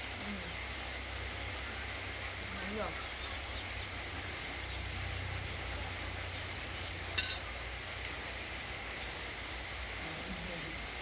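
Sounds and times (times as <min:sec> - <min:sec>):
faint hiss: 0:00.0 - 0:11.0
metal spoon clinking on plate: 0:07.2 - 0:07.4.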